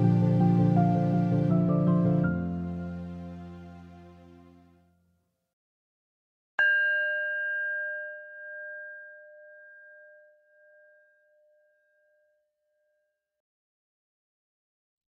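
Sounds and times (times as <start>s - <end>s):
singing bowl ringing: 6.6s - 13.3s.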